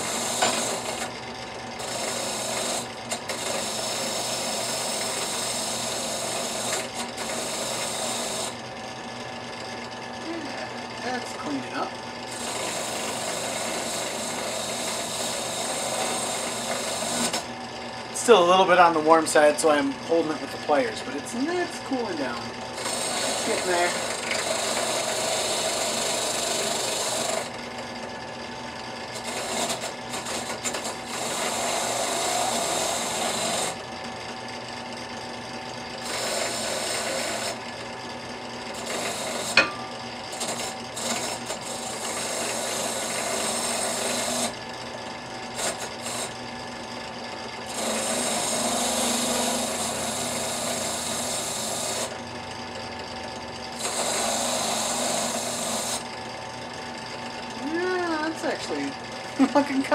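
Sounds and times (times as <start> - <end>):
wire wheel brushing metal: 22.8 - 26.8, 38.8 - 43.2.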